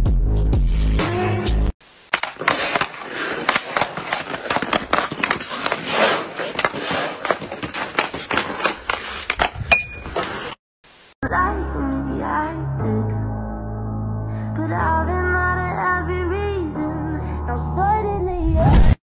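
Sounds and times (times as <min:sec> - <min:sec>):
skates scraping on ice: 0:02.1 - 0:10.6
hockey stick clacking on puck: 0:02.2 - 0:10.3.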